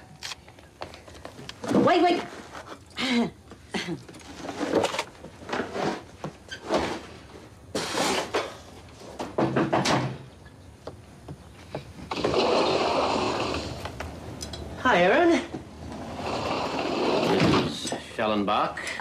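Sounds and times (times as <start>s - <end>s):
household thumps and knocks: 9.2s - 10.2s.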